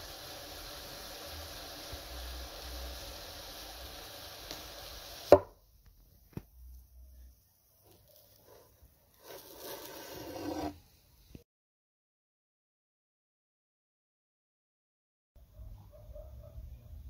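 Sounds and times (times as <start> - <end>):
hot blade sizzling: 0.0 - 5.5, 7.9 - 10.8.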